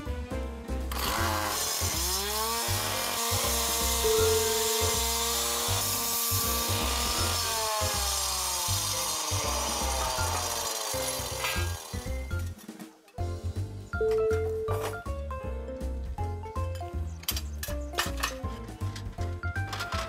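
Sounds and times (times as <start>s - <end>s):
cut-off saw cutting road surface: 0.9s - 12.6s
music with steady beat: 11.9s - 17.1s.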